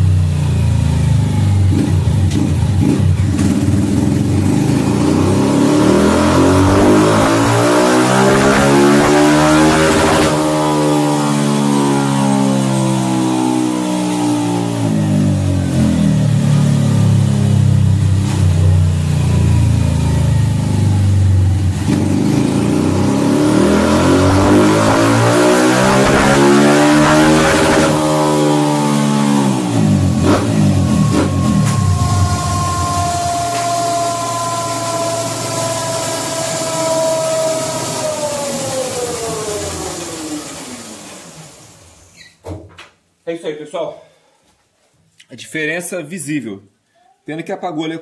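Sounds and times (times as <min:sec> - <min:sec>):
motorcycle engine under load: 0:00.0 - 0:42.4.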